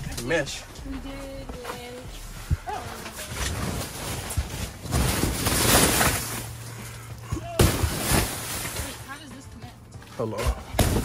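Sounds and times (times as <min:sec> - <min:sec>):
tent fabric rustling and scraping: 0:01.0 - 0:06.8, 0:07.6 - 0:09.2.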